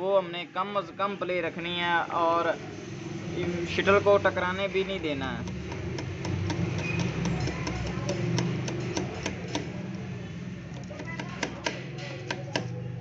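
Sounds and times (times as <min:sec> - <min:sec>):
sharp metal clicks and taps: 0:05.4 - 0:10.1, 0:10.7 - 0:12.8.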